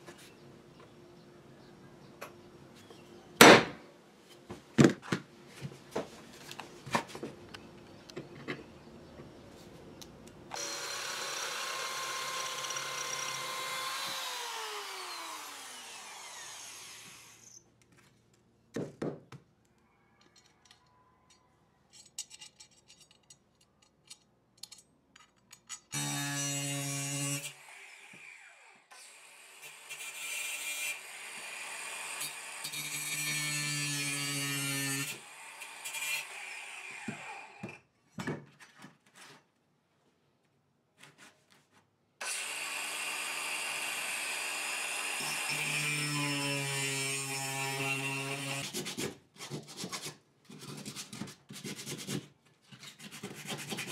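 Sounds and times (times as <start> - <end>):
angle grinder cutting steel: 10.5 - 17.6, 42.2 - 48.6
electric drill boring steel: 10.5 - 17.6, 42.2 - 48.6.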